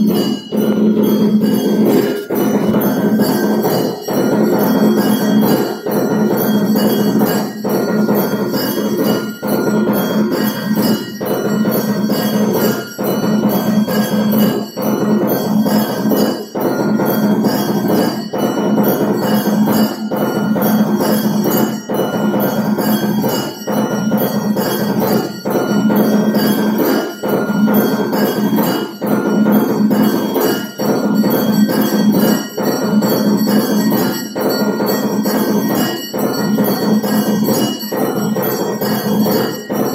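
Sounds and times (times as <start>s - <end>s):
temple bells clanging: 0.0s - 39.9s.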